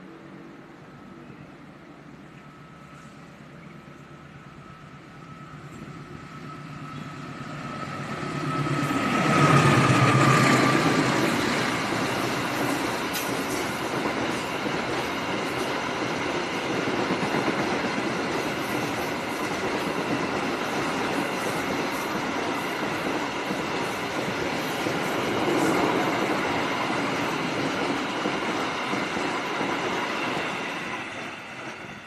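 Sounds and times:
diesel locomotive engine whine: 0.0s - 32.0s
train wheels clattering on rails: 7.9s - 32.0s.

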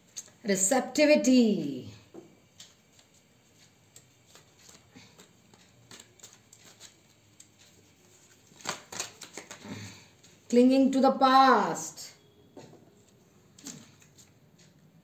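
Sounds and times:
cards rustling and clicking: 2.5s - 9.7s.

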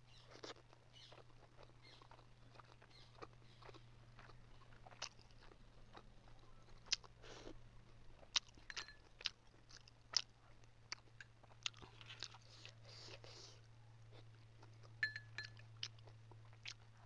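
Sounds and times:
chewing: 0.1s - 17.0s
spoon clinking on glass bowl: 8.7s - 9.1s, 15.0s - 15.6s.

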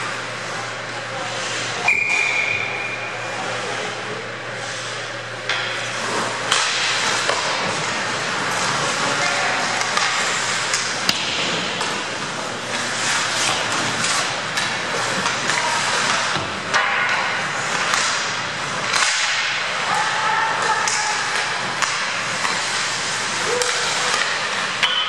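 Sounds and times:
hockey sticks and puck clacking: 4.7s - 25.0s
skate blades scraping on ice: 5.8s - 16.4s, 17.2s - 24.8s
players calling out: 19.6s - 24.8s.

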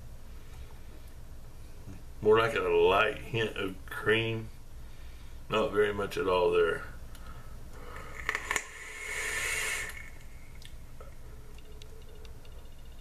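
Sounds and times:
quiet exhale: 7.2s - 10.5s
airy vapor hissing: 7.9s - 10.5s
vape clicks: 8.1s - 10.7s.

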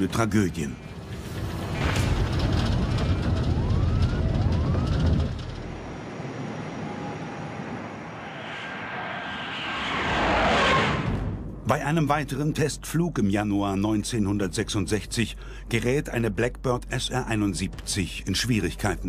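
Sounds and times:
jet aircraft rumble: 0.0s - 13.0s
short rising whines: 1.0s - 11.6s
jet passing whoosh: 5.7s - 11.7s.

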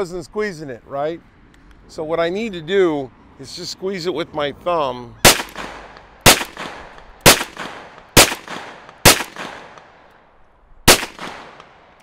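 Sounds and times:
rifle gunshots echoing: 5.2s - 10.1s, 10.9s - 12.0s.

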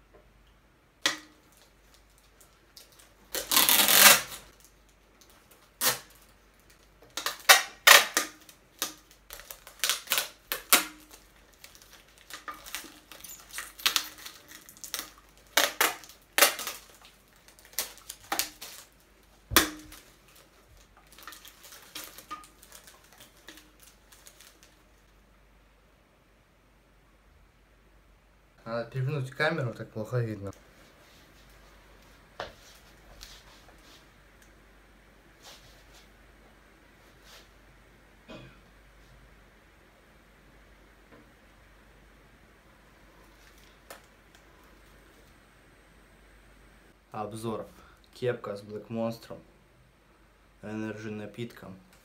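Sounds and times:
rustling: 1.1s - 25.2s, 30.5s - 34.2s, 35.3s - 36.2s.

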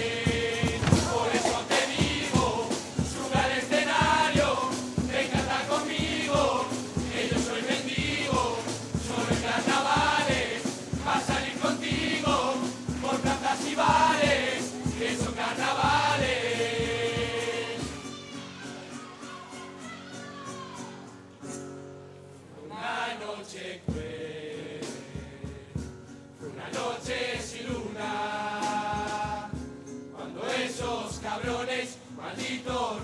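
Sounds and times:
steady percussion beat: 0.0s - 18.0s, 26.8s - 29.8s
chorus singing in unison: 0.0s - 18.1s, 22.6s - 33.0s.

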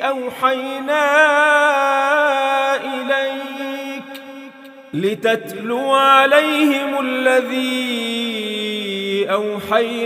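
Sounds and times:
man reciting melodically: 0.0s - 10.0s.

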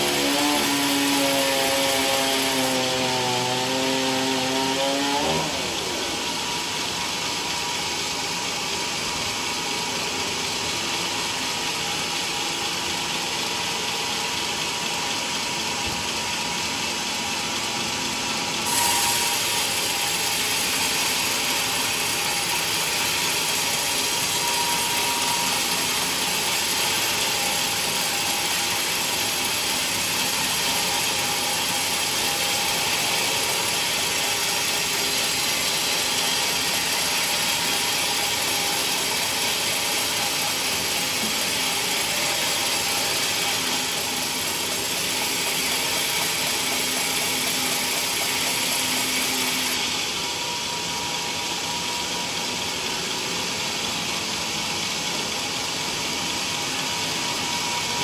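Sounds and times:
band saw ripping wood: 0.0s - 5.8s.

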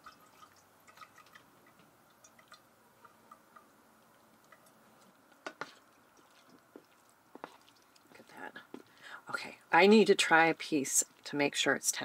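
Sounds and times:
liquid dripping into a saucepan: 0.0s - 9.0s.

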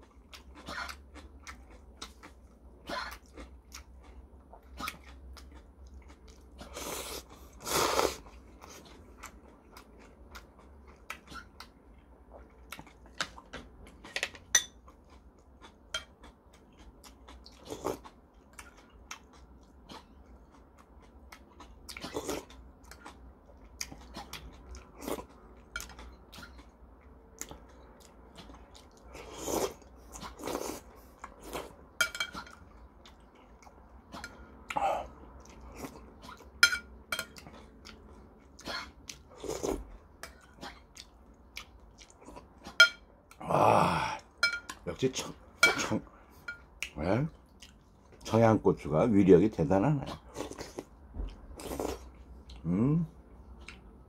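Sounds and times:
person slurping noodles: 6.6s - 8.3s.

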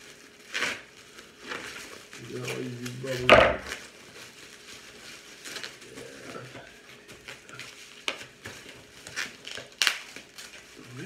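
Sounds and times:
bubble wrap crinkling: 0.0s - 11.0s
bubble wrap clicks: 7.1s - 10.8s.

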